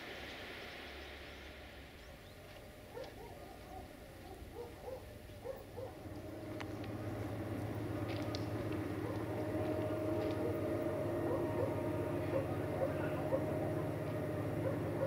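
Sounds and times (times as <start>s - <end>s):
diesel locomotive engine: 0.0s - 15.0s
repeated animal calls: 8.4s - 15.0s.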